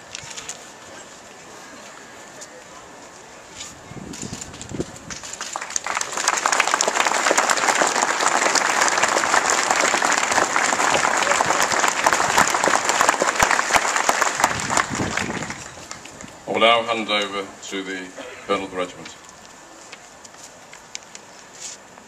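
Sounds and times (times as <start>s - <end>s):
large crowd applauding: 5.3s - 16.3s.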